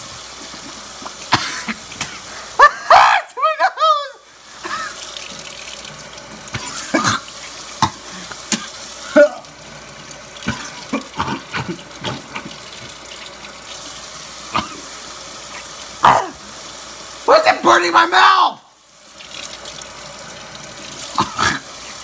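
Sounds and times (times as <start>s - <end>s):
person coughing and spitting: 1.0s - 2.3s, 6.5s - 9.4s, 10.4s - 12.5s, 14.5s - 14.9s, 16.0s - 16.4s, 21.1s - 21.7s.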